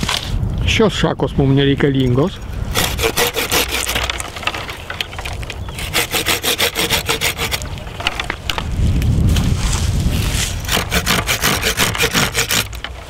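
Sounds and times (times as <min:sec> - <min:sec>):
hand saw cutting branch: 0:02.7 - 0:04.7, 0:05.7 - 0:08.4, 0:10.2 - 0:13.0.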